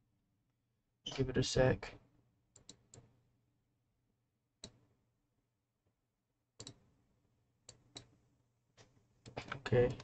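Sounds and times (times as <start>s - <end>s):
computer mouse clicks: 2.5s - 3.1s, 4.6s - 4.9s, 6.6s - 6.9s, 7.6s - 8.2s.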